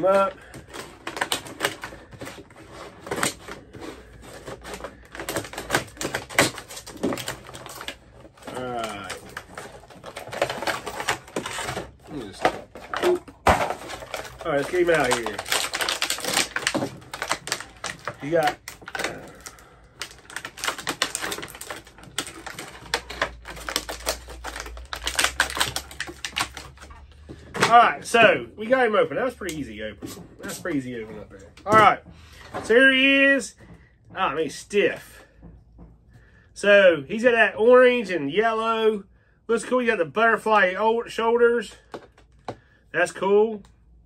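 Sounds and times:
plastic packaging being torn open: 0:00.0 - 0:27.0.

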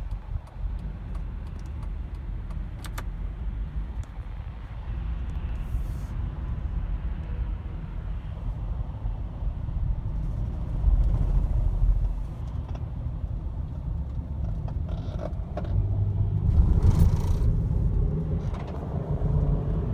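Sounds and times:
road traffic rumble: 0:00.0 - 0:19.9.

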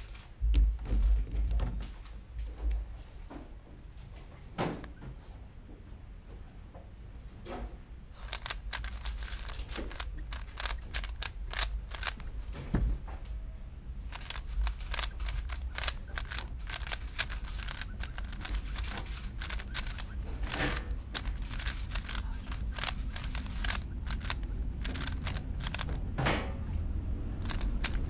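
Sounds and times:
puzzle cube layers clicking: 0:08.3 - 0:12.3, 0:14.1 - 0:25.9, 0:27.4 - 0:28.0.

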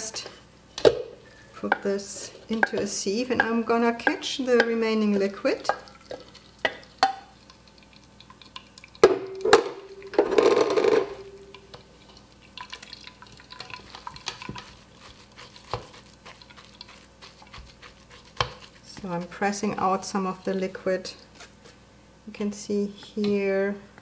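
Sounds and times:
liquid draining: 0:05.3 - 0:14.8
wooden spoon scraping in sieve: 0:13.8 - 0:21.8.

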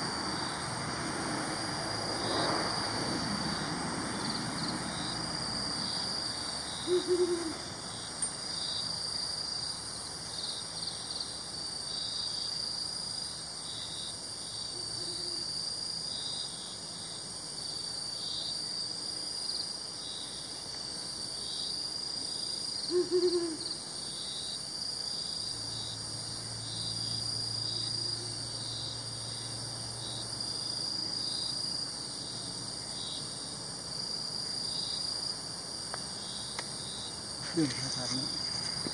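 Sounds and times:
crickets and insects chirping: 0:00.0 - 0:38.9
owl hooting: 0:06.8 - 0:07.7, 0:22.9 - 0:23.7.

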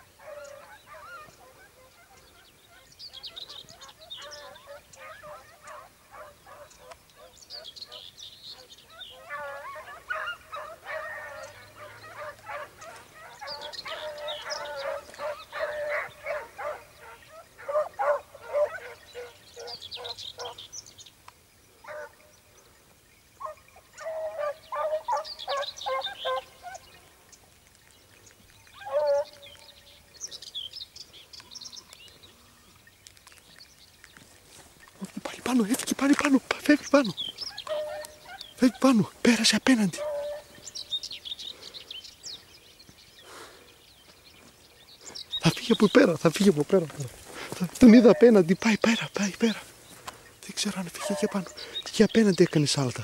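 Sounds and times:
hound baying: 0:00.0 - 0:20.7, 0:21.8 - 0:22.4, 0:23.4 - 0:27.0, 0:28.7 - 0:30.4, 0:34.5 - 0:41.2, 0:46.4 - 0:49.7, 0:50.6 - 0:51.8.

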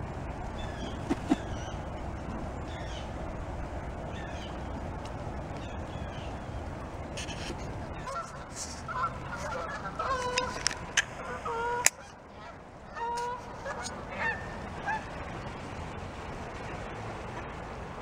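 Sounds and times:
geese honking in flight: 0:07.2 - 0:15.3.

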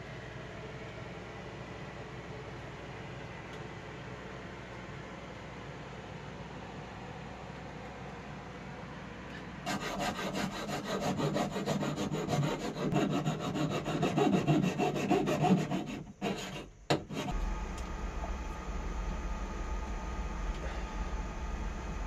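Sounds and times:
rhythmic rasping scrape: 0:09.7 - 0:17.4.

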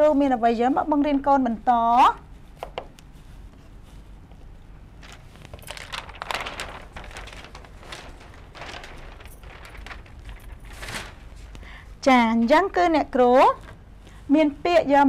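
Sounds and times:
large paper sheet rustling: 0:05.0 - 0:11.8.

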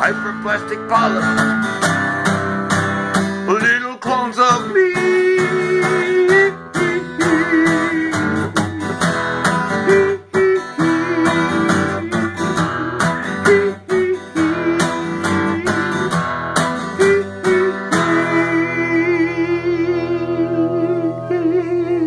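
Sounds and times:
acoustic guitar strumming: 0:00.0 - 0:22.0.

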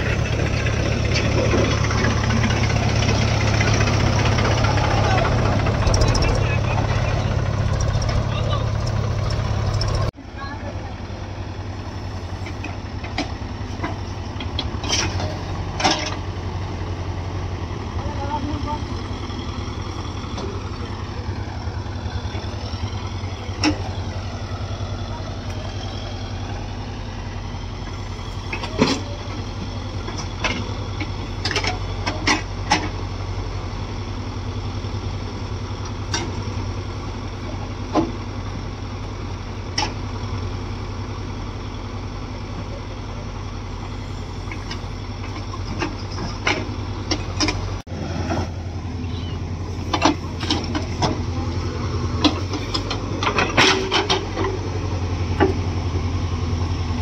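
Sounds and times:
heavy diesel engine running: 0:00.0 - 0:57.0
sharp knocks and clanks: 0:49.8 - 0:51.4, 0:52.2 - 0:54.6.

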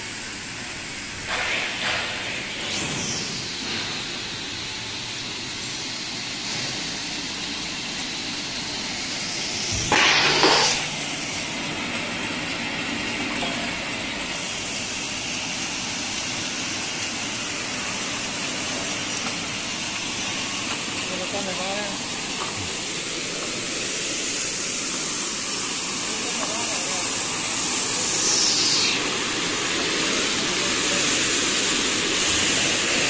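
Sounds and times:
rushing water hiss: 0:00.0 - 0:33.0.

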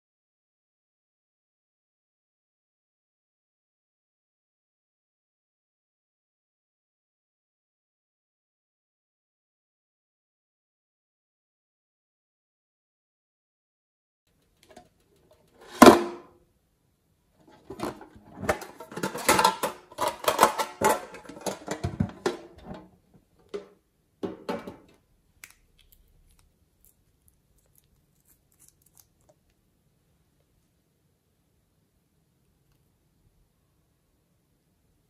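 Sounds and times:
containers clicking and rattling: 0:17.6 - 0:22.8.

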